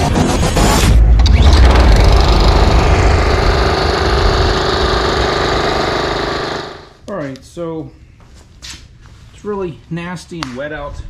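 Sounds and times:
lawn mower engine running: 1.6 - 7.0.

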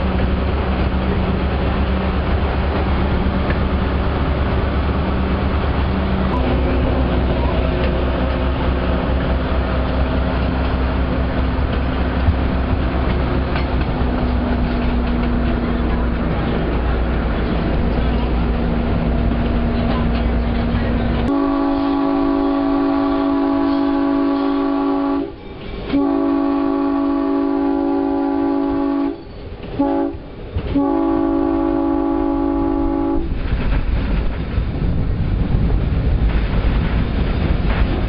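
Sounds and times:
diesel engine running: 0.0 - 23.2
train rumbling along track: 0.0 - 38.0
train horn blasts: 21.3 - 33.4.

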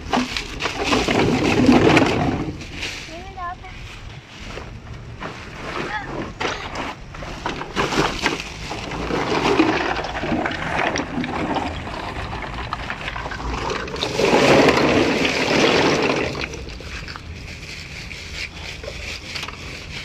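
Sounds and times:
aluminium cans clattering: 0.0 - 2.6, 5.6 - 17.3
plastic bag rustling: 0.0 - 20.0.

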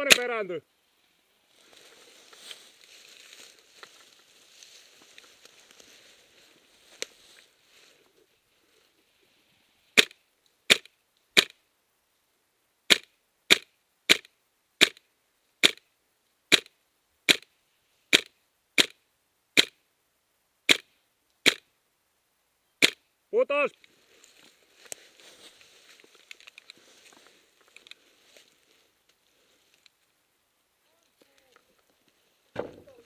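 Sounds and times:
airsoft rifle shots: 10.0 - 11.6, 12.9 - 15.0, 16.5 - 16.7, 17.3 - 17.5, 18.1 - 19.0, 19.6 - 19.8, 20.7 - 21.6, 22.8 - 23.0.

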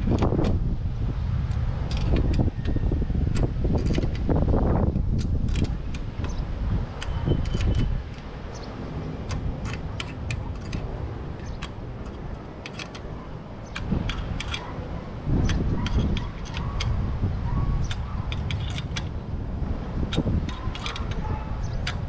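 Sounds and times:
hex key metallic clicks: 7.0 - 14.8, 15.4 - 17.0, 17.8 - 19.2, 20.1 - 22.0.

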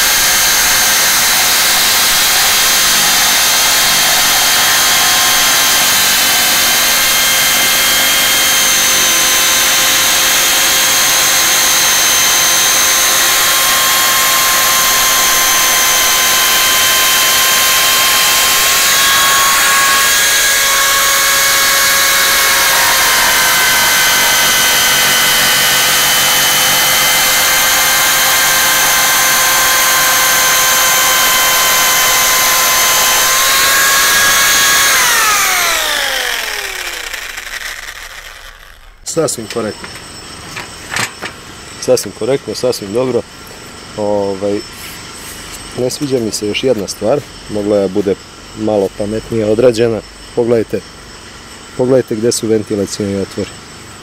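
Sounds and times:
jigsaw motor whine: 0.0 - 42.2.

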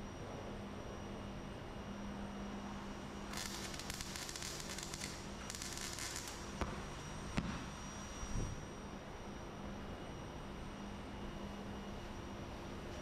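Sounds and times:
welding arc crackling: 3.3 - 8.3.

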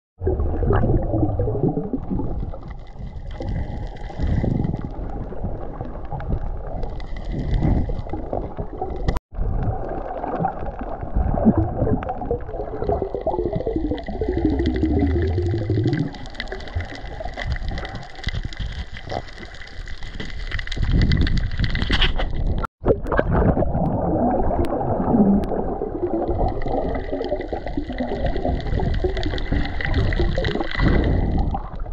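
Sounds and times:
underwater water rumble: 0.2 - 31.9
water gurgling and sloshing: 0.2 - 31.9.

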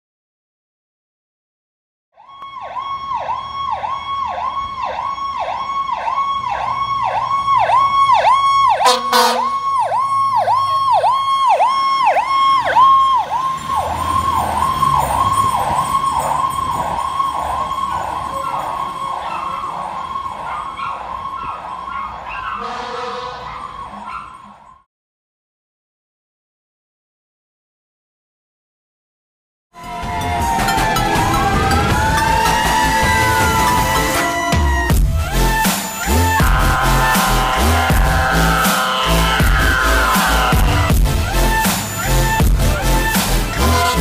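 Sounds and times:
fire engine siren yelping: 2.2 - 24.9, 29.8 - 44.0
loud horn blast: 8.8 - 9.7, 22.6 - 23.5, 36.0 - 44.0.

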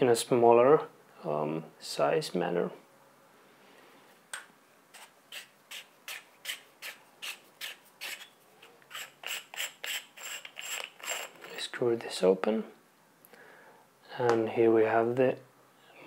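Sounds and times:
screw cap threads scraping: 4.9 - 11.6.

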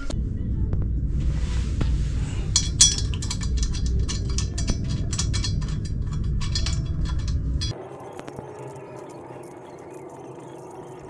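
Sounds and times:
low rumble: 0.2 - 7.7
metal tools clinking: 2.5 - 11.0.

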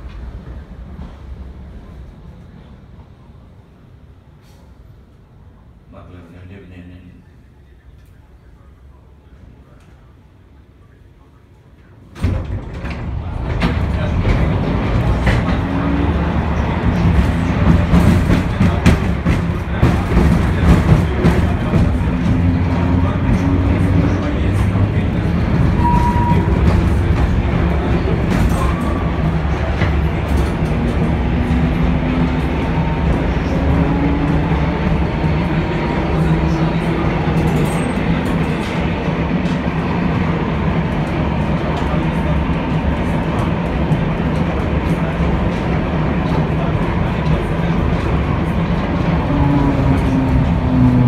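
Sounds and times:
tram wheels rumbling on rail: 0.0 - 6.4, 7.8 - 51.0
brief high-pitched tone: 25.8 - 26.6.

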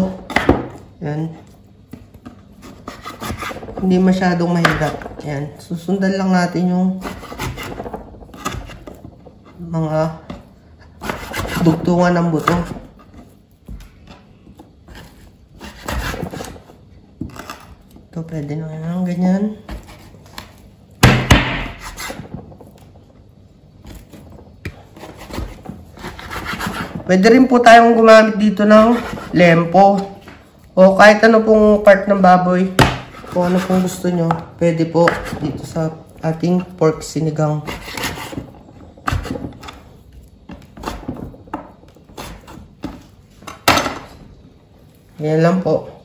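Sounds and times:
knife tapping and scraping board: 1.4 - 5.5, 6.9 - 17.9, 23.8 - 30.4, 32.7 - 39.9, 40.5 - 44.2.

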